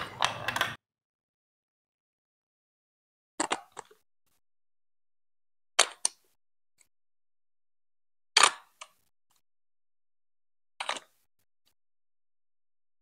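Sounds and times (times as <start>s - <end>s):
plastic bricks clicking together: 3.4s - 4.0s.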